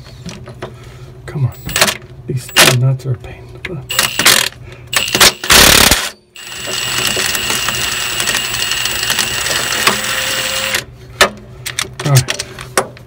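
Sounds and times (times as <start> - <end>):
power tool loosening a nut: 3.9 - 10.9.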